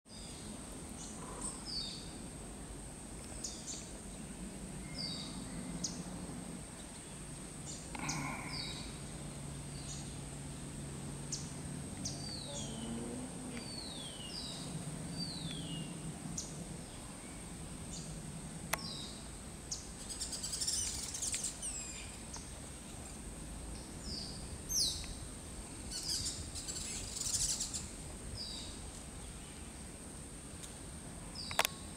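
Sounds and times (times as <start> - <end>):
small birds chirping: 3.3 - 10.4, 11.2 - 29.8, 31.4 - 31.9.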